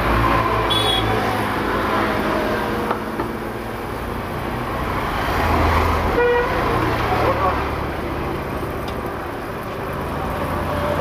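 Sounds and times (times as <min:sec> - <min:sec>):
motorbikes passing: 0:00.0 - 0:11.0
high-pitched horn beep: 0:00.7 - 0:01.1.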